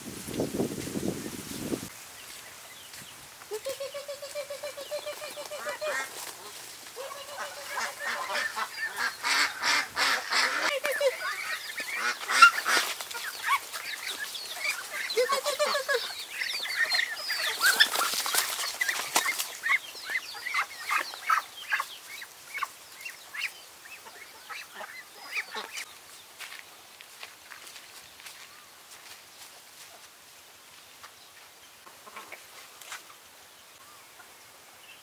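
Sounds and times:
ducks and chickens calling: 3.5 - 25.9
duck wings flapping: 17.3 - 19.7.

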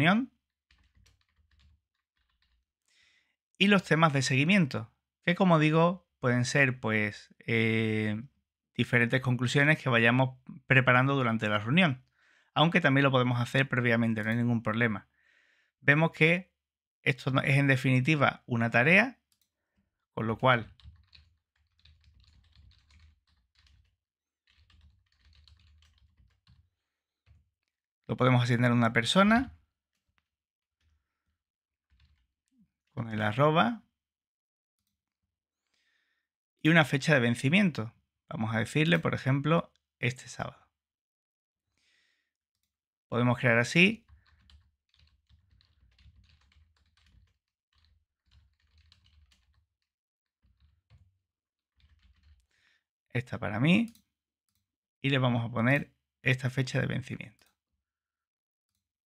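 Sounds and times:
typing on computer keyboard: 0.7 - 2.7, 20.5 - 27.7, 29.9 - 31.2, 31.8 - 32.3, 43.8 - 52.5.

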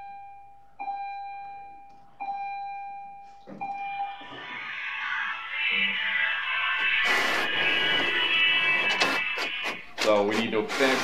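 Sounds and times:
music: 4.0 - 10.5.

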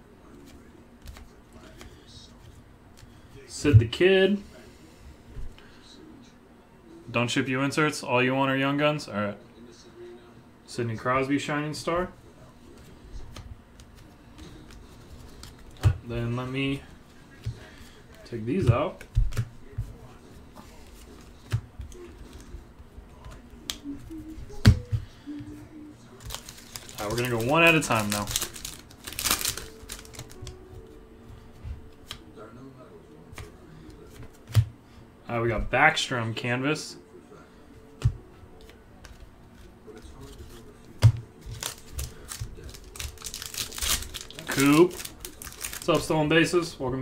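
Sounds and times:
card handling: 13.2 - 15.9, 26.1 - 30.8, 38.0 - 46.2
foil wrapper crinkling and tearing: 26.2 - 30.5, 41.5 - 46.2.

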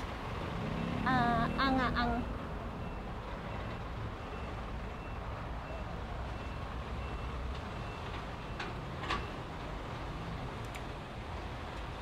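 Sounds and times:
reversing alarm beeps: 1.4 - 9.5.

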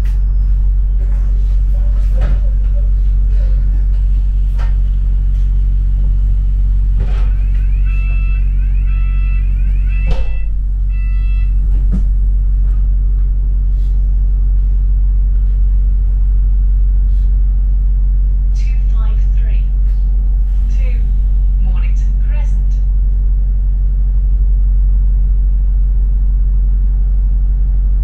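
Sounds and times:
bus engine and road rumble: 0.0 - 28.0
electronic beeps: 7.3 - 11.8.

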